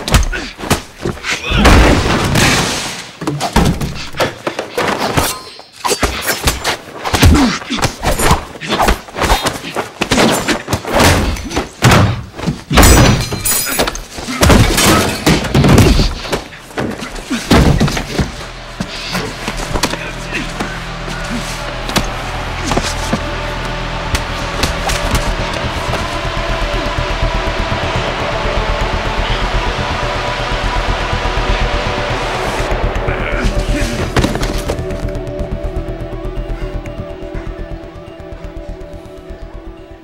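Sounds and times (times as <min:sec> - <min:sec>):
crash: 0:01.6 - 0:03.2.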